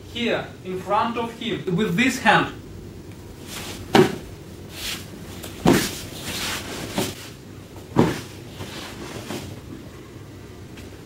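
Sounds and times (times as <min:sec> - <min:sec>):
soft rustling: 0:03.4 - 0:07.4
body thudding on foam mat: 0:03.7 - 0:04.2, 0:05.4 - 0:07.2, 0:07.9 - 0:09.4.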